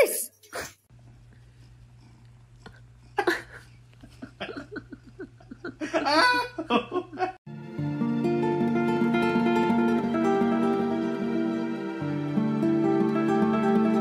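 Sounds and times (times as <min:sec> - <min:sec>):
person laughing: 0:03.2 - 0:07.4
acoustic guitar music: 0:07.5 - 0:14.0.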